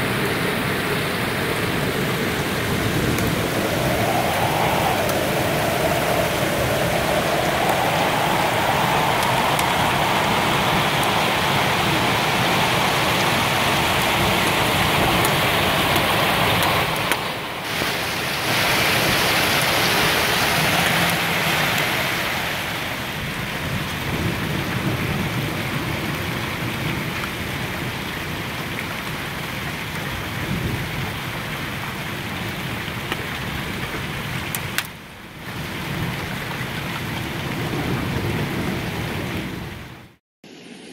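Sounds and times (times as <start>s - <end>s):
hail and heavy rain: 0.0s - 39.9s.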